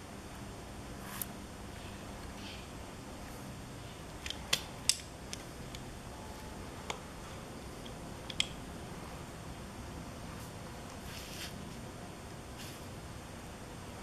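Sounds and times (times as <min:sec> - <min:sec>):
low background hiss: 0:00.0 - 0:14.0
cable connectors clicking: 0:07.8 - 0:08.6.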